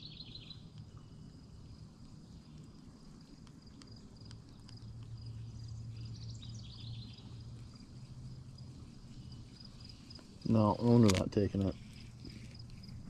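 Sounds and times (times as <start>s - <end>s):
bird chirping: 0.0s - 0.7s, 4.7s - 8.2s
insect trill: 0.0s - 13.0s
faint clicks: 3.4s - 5.3s.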